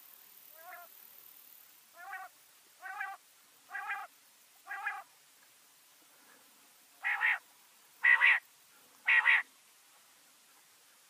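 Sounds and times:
quail calls: 0.6s - 0.9s, 2.0s - 5.1s, 7.0s - 7.4s, 8.0s - 8.4s, 9.0s - 9.5s.

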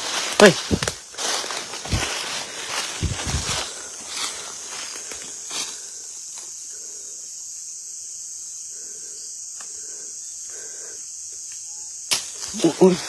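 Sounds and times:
crickets buzzing: 0.0s - 13.0s.

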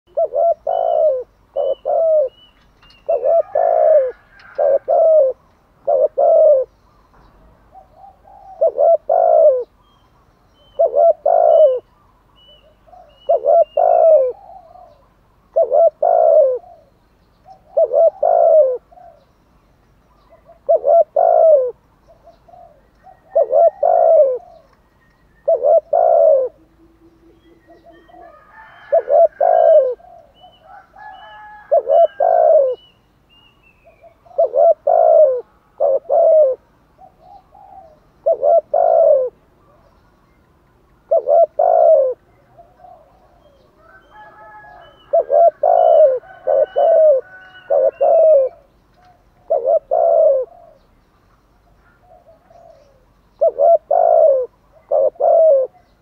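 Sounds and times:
dove cooing: 0.1s - 2.4s, 3.0s - 6.8s, 7.7s - 9.8s, 10.6s - 19.3s, 20.2s - 24.7s, 25.4s - 32.9s, 33.8s - 40.0s, 41.0s - 51.0s, 51.8s - 56.0s
small bird chirping: 0.1s - 4.5s.

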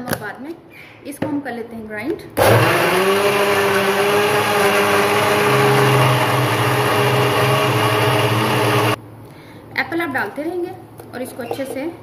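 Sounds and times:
blender grinding: 2.4s - 9.0s.

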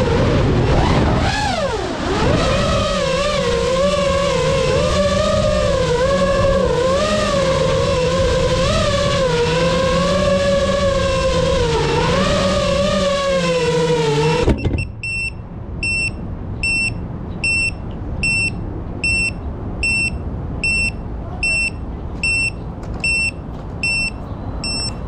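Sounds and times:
drone motors whining: 0.0s - 15.3s
electronic buzzer beeping: 14.6s - 25.0s.

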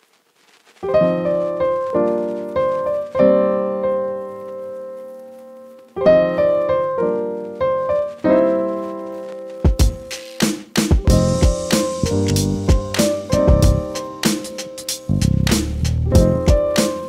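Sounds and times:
keyboard chords: 6.0s - 17.0s.

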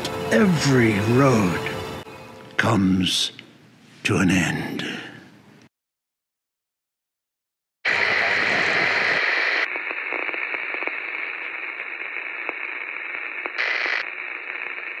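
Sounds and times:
crackling static with clicks: 7.9s - 15.0s
static hiss: 7.9s - 15.0s.

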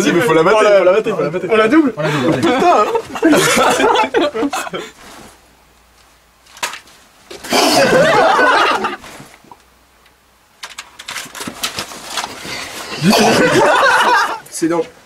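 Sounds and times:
person laughing: 2.2s - 4.9s, 7.6s - 9.0s, 13.0s - 14.4s.

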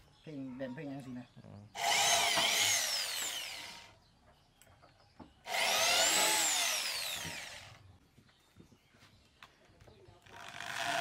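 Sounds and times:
cordless drill whining: 1.8s - 3.9s, 5.5s - 7.8s.

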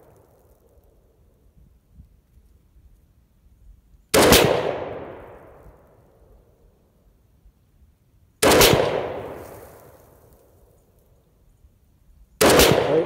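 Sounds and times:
rifle shots with echo: 4.1s - 5.7s, 8.4s - 9.7s, 12.4s - 13.0s.

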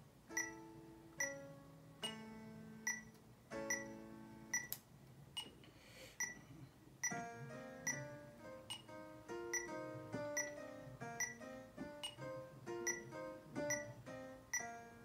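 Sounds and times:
metronome ticking: 0.3s - 0.6s, 1.2s - 4.8s, 7.0s - 14.8s
electronic keyboard playing scales: 0.3s - 4.6s, 7.1s - 15.0s.

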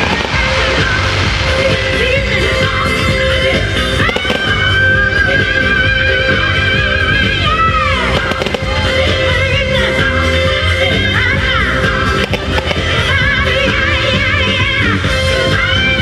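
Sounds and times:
firework bangs and crackles: 0.0s - 10.2s, 11.9s - 13.8s
music playing: 0.0s - 16.0s.

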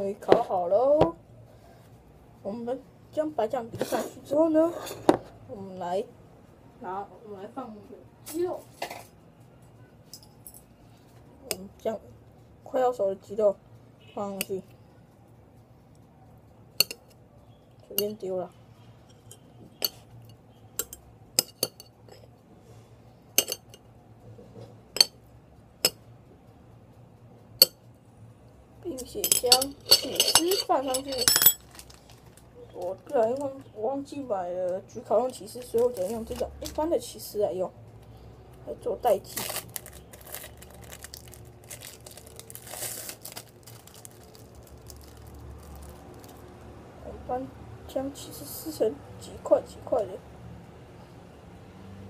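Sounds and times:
clinks against ceramic dishes: 19.1s - 22.0s, 23.4s - 23.8s, 29.2s - 31.6s
cheese wrapper rustling: 30.1s - 33.6s, 35.3s - 36.8s, 39.1s - 46.5s.

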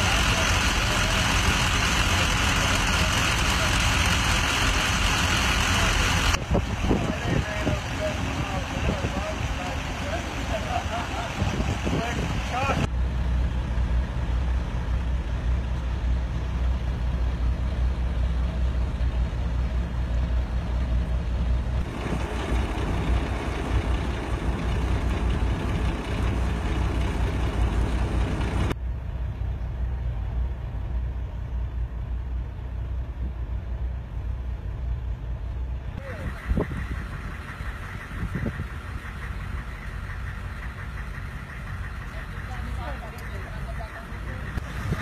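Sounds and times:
heavy truck engine idling: 0.0s - 45.0s
outdoor noise: 0.0s - 45.0s.

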